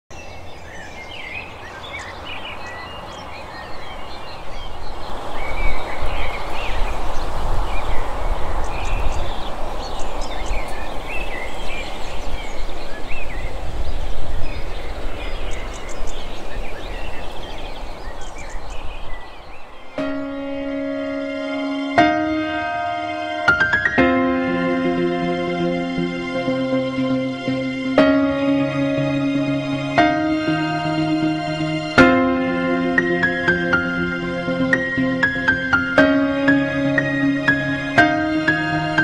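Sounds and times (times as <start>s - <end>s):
small birds chirping: 0.1s - 32.1s
music with held notes: 20.0s - 39.0s.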